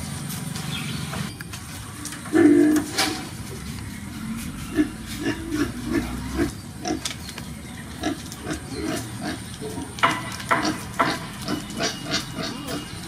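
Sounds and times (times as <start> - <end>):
soft animal grunts: 4.4 - 6.5.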